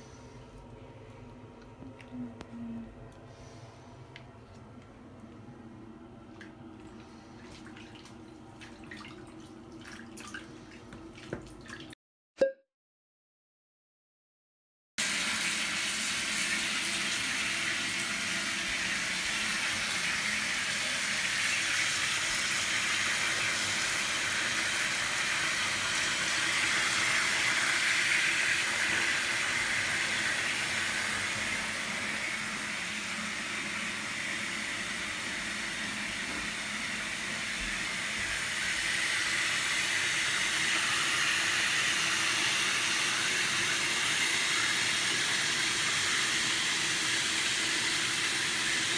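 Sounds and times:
water running into bath: 0:03.1 - 0:12.0, 0:15.0 - 0:48.9.

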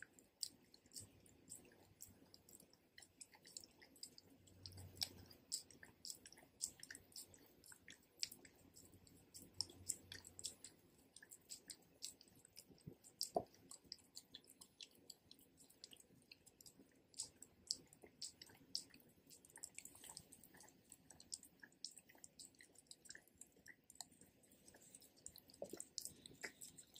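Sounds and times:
dog licking: 0:00.2 - 0:26.9.

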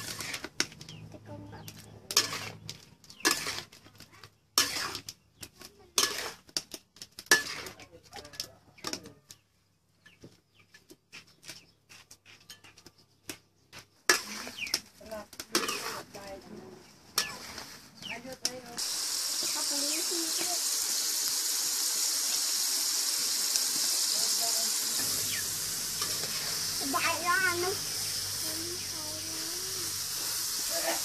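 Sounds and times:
spatula scraping steel wok: 0:00.0 - 0:09.0, 0:14.1 - 0:31.0.

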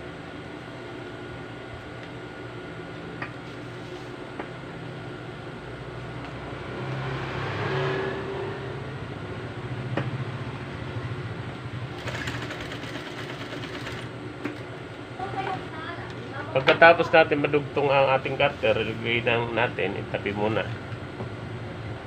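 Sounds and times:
sewing machine motor hum: 0:11.9 - 0:14.6.

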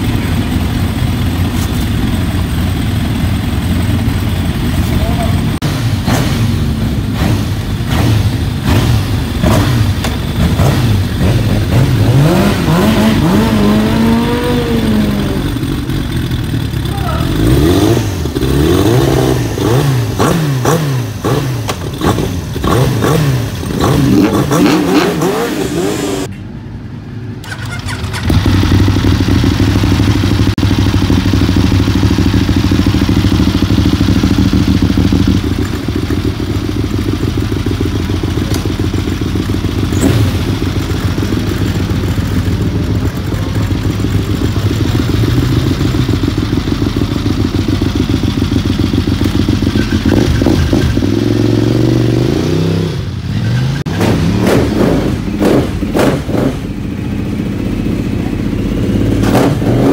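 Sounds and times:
motorcycle engine idling: 0:00.0 - 0:11.8, 0:13.7 - 0:19.8, 0:26.5 - 0:51.2, 0:56.6 - 0:59.2
race bike engines revving: 0:00.0 - 0:26.4, 0:27.4 - 0:59.9.

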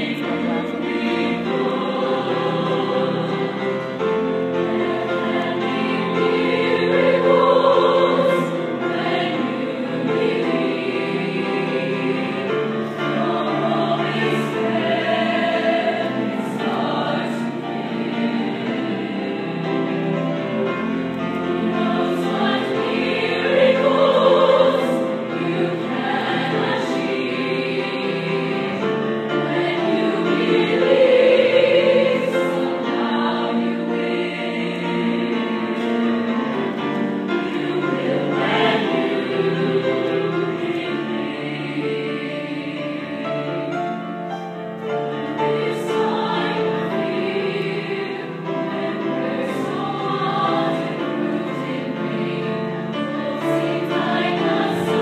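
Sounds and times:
choir singing sustained chords: 0:00.0 - 0:55.0.

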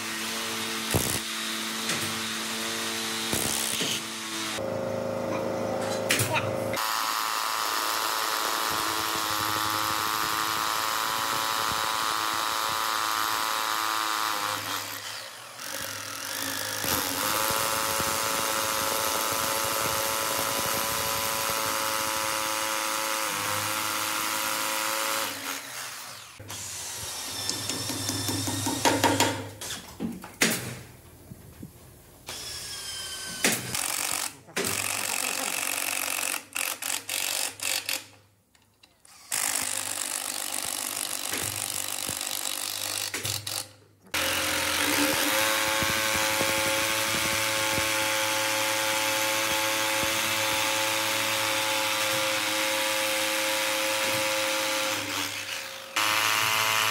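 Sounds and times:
power tool motor whining: 0:00.8 - 0:28.5, 0:39.2 - 0:56.9.

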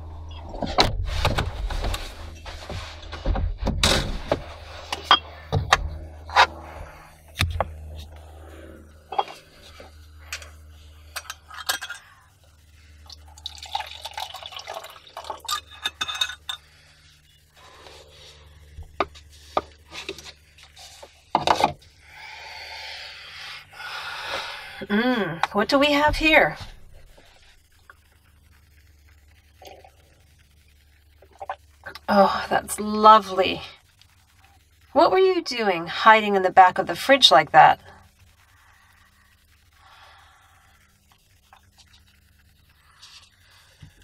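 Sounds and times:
liquid pouring into cup: 0:13.0 - 0:16.7.

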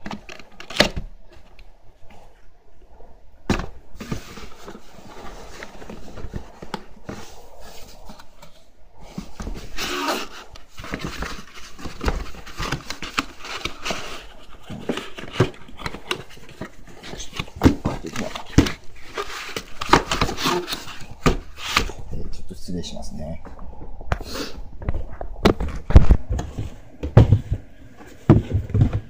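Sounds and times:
cardboard box rustling and scraping: 0:04.0 - 0:22.0.

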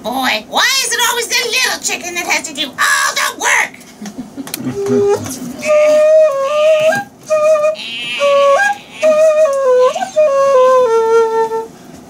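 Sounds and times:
flute-like tune: 0:04.7 - 0:11.8.

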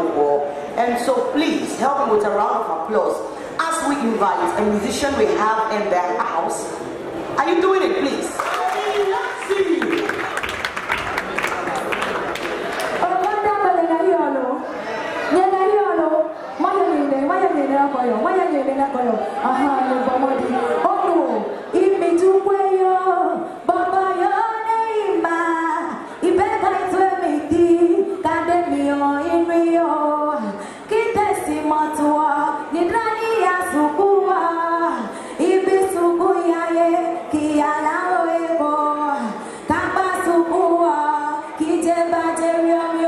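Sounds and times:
woman singing into a microphone: 0:15.4 - 0:43.0.

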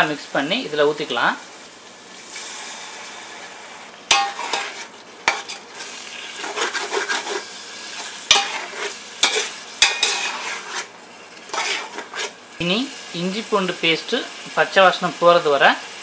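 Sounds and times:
onions sizzling in oil: 0:00.0 - 0:16.0
metal ladle clanking on pot: 0:04.1 - 0:04.7, 0:09.2 - 0:10.4
ladle scraping a pot: 0:04.1 - 0:12.4.

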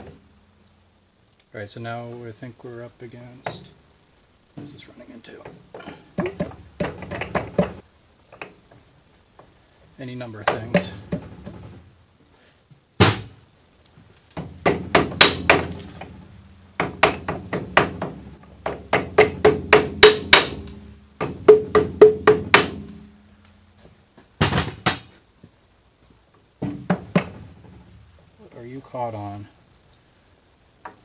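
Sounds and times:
hammer tapping on metal: 0:16.8 - 0:23.1.

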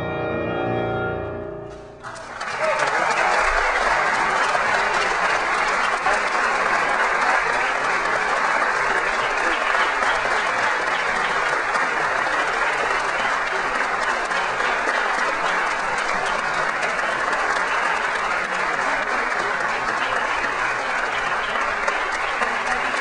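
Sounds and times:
crowd applauding: 0:01.7 - 0:23.0.

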